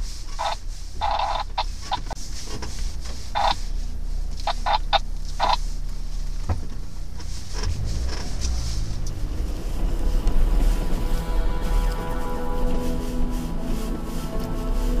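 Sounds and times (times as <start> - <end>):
low engine rumble: 0.0 - 15.0.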